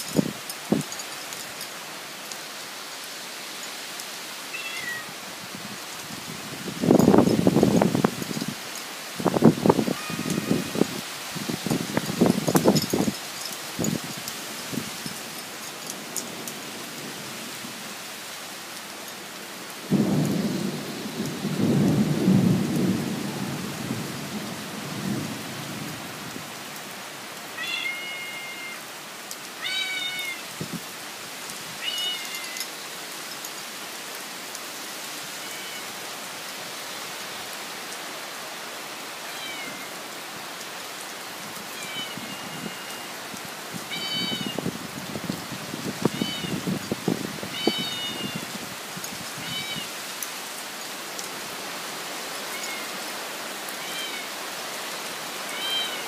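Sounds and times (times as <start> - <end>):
steady rain: 0.0 - 56.0
high-pitched animal calls: 4.6 - 5.1, 9.9 - 10.9
rumble of thunder: 19.9 - 26.0.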